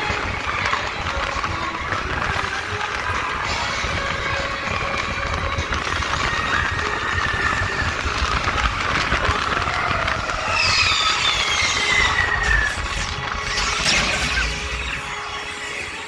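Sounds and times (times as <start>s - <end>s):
roller coaster rumble and rattle: 0.0s - 16.0s
high squeal falling in pitch: 10.3s - 16.0s.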